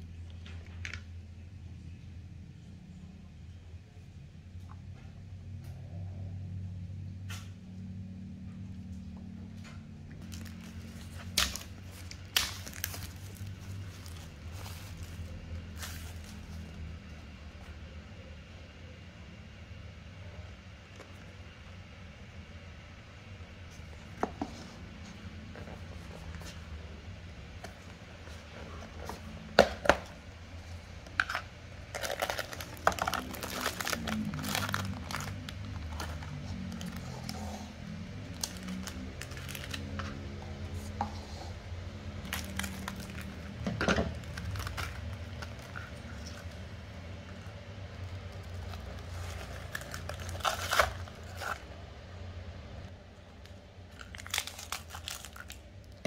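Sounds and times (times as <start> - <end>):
food packaging crinkling: 10.2 - 16.9, 27.6 - 41.0, 42.2 - 51.7, 53.4 - 56.0.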